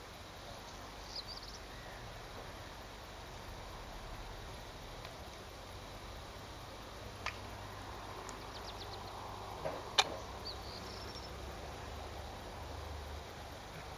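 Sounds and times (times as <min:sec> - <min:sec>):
faint hiss and low rumble: 0:00.0 - 0:13.9
bird calls: 0:00.6 - 0:02.7, 0:08.0 - 0:11.5
sharp clicks: 0:09.6 - 0:10.3.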